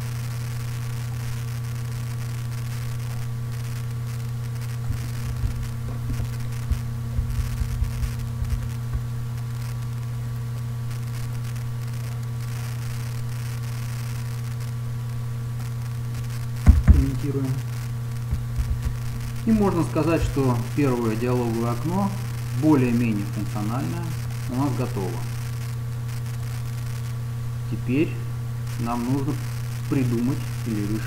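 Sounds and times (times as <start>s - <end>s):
electrical hum: 0.0s - 31.0s
microphone hiss: 0.0s - 31.0s
soft low thumps: 4.6s - 10.0s, 16.6s - 20.5s.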